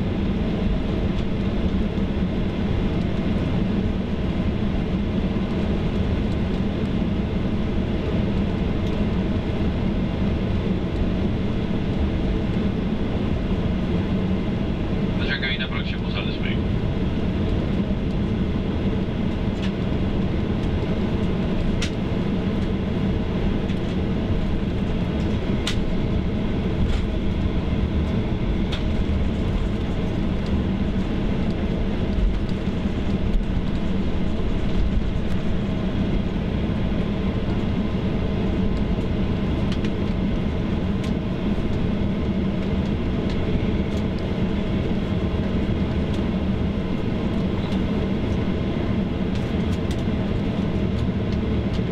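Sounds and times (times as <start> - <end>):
jet engines humming: 0.0 - 51.9.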